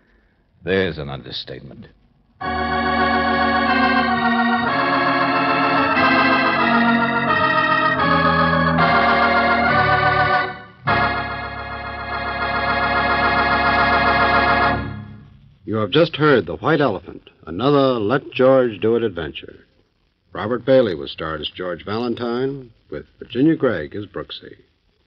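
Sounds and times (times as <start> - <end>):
organ playing sustained chords: 2.4 - 16.4.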